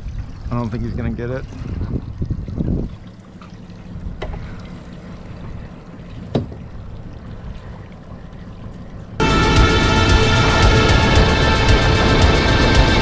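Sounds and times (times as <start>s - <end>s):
outboard motor idling: 3.0s - 13.0s
loud music: 9.2s - 13.0s.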